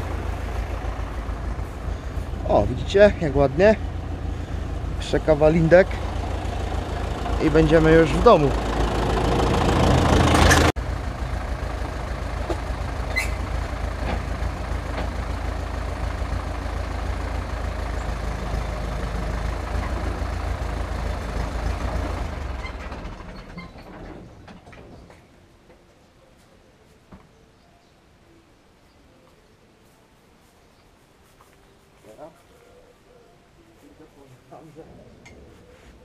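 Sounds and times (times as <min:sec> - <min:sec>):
tractor diesel engine idling: 0:00.0 - 0:25.0.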